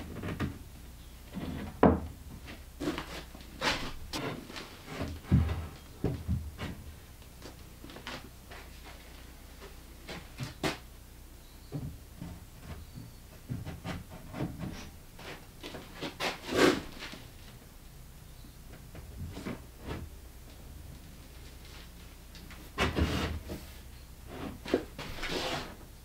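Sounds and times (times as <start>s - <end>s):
wooden panels knocking and scraping: 1.3s - 6.8s, 11.7s - 15.4s.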